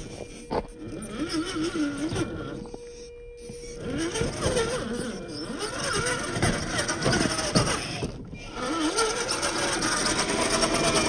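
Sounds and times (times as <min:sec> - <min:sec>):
electric motor whining: 0:00.0 - 0:11.0
tyres crunching over rocks: 0:05.5 - 0:10.8.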